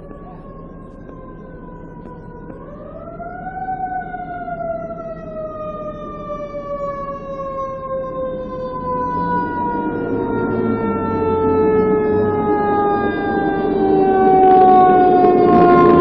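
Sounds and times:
emergency siren wailing: 0.0s - 16.0s.

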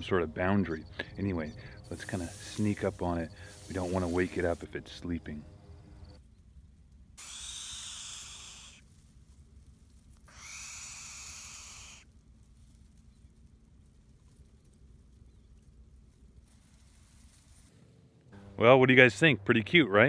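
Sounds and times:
bird chick hissing: 1.8s - 4.6s, 7.2s - 8.8s, 10.3s - 12.1s.

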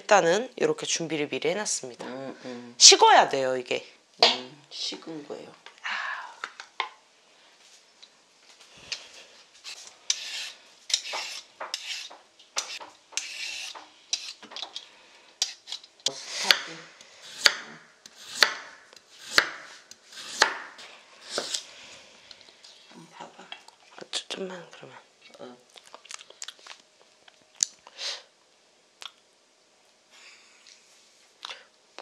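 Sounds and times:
knife slicing carrot on board: 9.6s - 14.4s, 16.4s - 21.6s
spoon scraping metal bowl: 9.6s - 14.4s.

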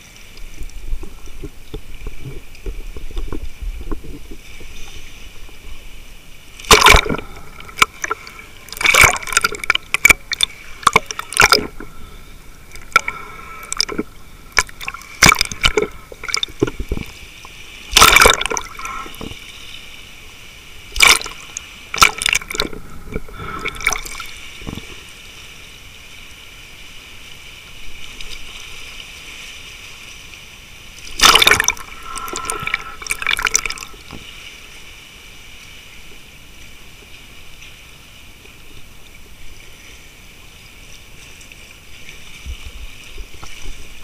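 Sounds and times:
seawater splashing and gurgling: 0.0s - 44.0s
waves surging: 0.0s - 44.0s.

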